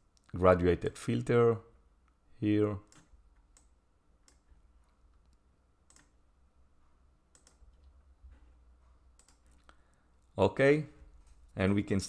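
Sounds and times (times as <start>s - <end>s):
computer mouse clicks: 2.9s - 6.2s, 7.3s - 8.0s, 9.1s - 9.9s.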